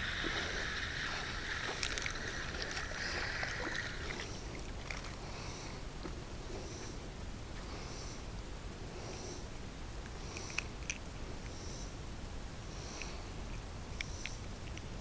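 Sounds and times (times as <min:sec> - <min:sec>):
fish splashing: 0:00.0 - 0:04.8
fishing reel gears whirring: 0:00.0 - 0:05.2.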